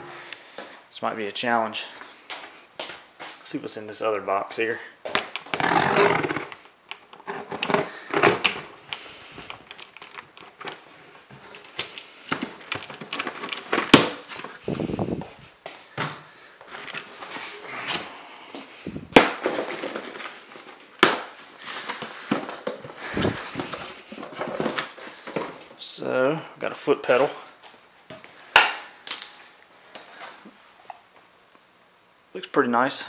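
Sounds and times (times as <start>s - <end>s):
cardboard box rustling: 9.5s - 14.8s, 21.6s - 25.7s.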